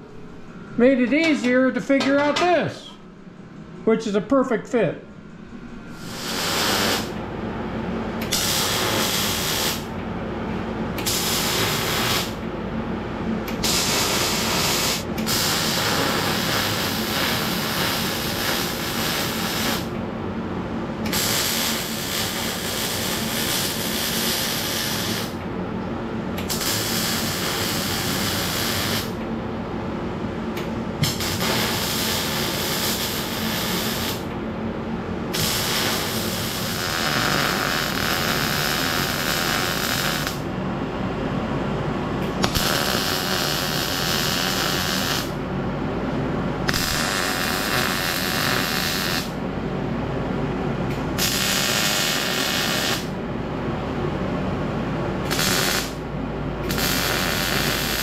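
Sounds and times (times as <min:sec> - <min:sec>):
steady low hum: 0:00.0 - 0:58.0
welding hissing crackle: 0:06.0 - 0:07.2, 0:08.2 - 0:09.9, 0:11.0 - 0:12.4, 0:13.5 - 0:19.9, 0:21.1 - 0:25.4, 0:26.4 - 0:29.2, 0:31.0 - 0:34.3, 0:35.4 - 0:40.4, 0:42.4 - 0:45.4, 0:46.7 - 0:49.4, 0:51.2 - 0:53.1, 0:55.3 - 0:56.0, 0:56.7 - 0:58.0.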